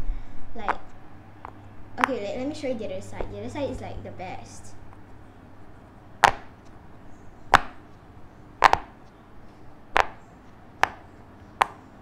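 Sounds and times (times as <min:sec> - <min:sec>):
pop-it toy bubbles popping: 0:08.6 - 0:08.9, 0:10.0 - 0:10.2.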